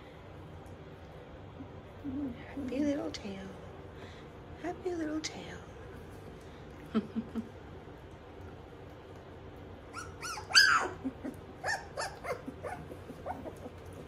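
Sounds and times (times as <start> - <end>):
puppies yipping and whining: 9.8 - 14.0.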